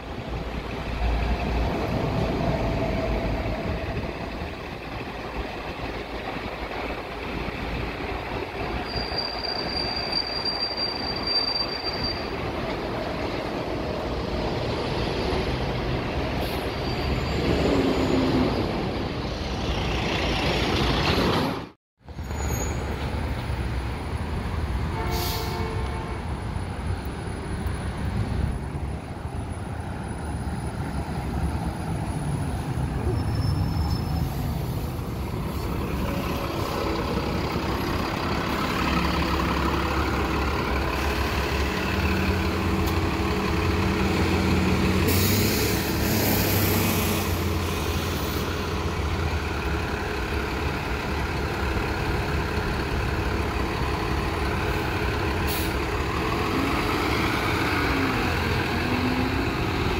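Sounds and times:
bus diesel engine: 0.0s - 59.9s
air brake hiss: 25.1s - 25.6s, 45.0s - 48.6s, 55.5s - 55.8s.

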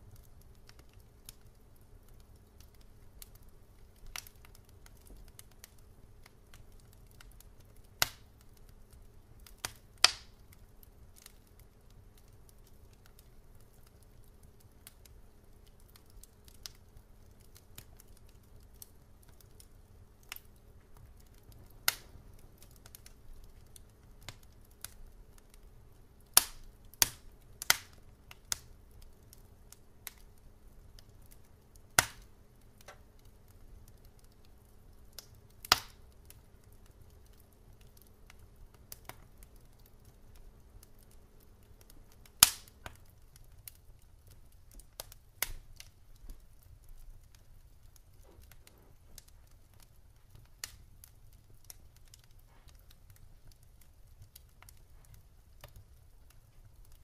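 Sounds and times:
logs crackling in fireplace: 0.0s - 57.0s
low rumble of flames: 0.0s - 57.0s
loud sharp pops of fire: 2.6s - 8.5s, 9.4s - 10.6s, 21.2s - 25.5s, 26.3s - 28.8s, 31.0s - 33.4s, 35.1s - 39.9s, 41.8s - 43.8s, 44.7s - 46.4s, 48.0s - 53.2s.

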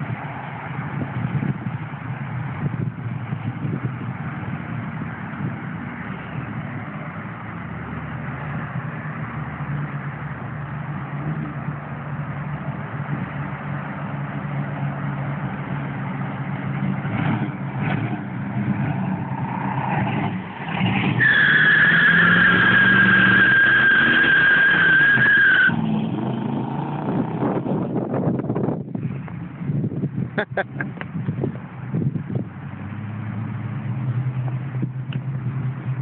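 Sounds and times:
car engine rumbling: 0.0s - 36.0s
tyres squealing: 21.0s - 25.9s.

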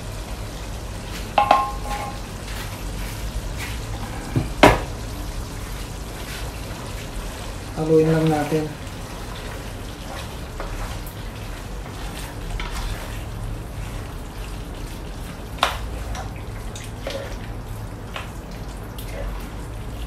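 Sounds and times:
wet stew stirring: 0.2s - 20.0s
spatula knocking against pot: 1.4s - 2.2s.

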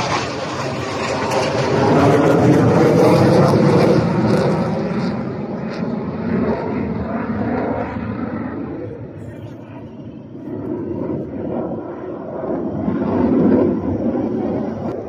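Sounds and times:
jet engines passing overhead: 0.0s - 15.0s.

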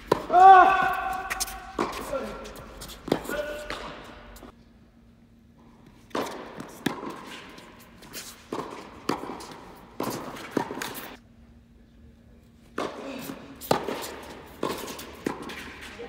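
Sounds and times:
ball bouncing on hard court: 0.0s - 4.5s, 6.1s - 7.6s, 8.5s - 11.1s, 12.8s - 15.8s
racket hitting tennis ball: 0.0s - 4.5s, 6.0s - 11.2s, 12.7s - 16.0s.

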